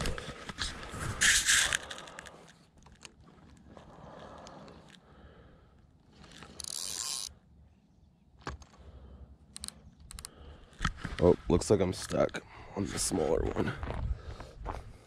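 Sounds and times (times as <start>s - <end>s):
fishing reel cranking: 1.2s - 2.4s, 6.2s - 7.4s.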